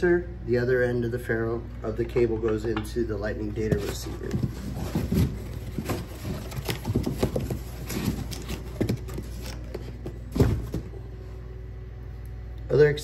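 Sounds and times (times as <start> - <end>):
cardboard packaging rustling: 3.6 - 10.9.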